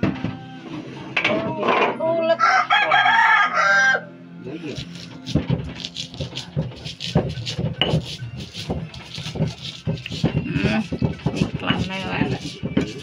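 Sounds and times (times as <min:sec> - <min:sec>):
stone pestle knocking in mortar: 0:04.8 - 0:13.0.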